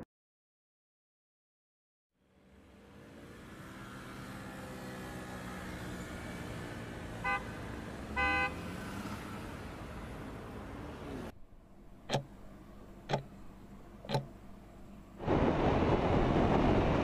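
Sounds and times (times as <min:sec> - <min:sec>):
passing cars hum: 0:02.2 - 0:17.0
car horn tooting: 0:07.2 - 0:07.5, 0:08.1 - 0:08.6.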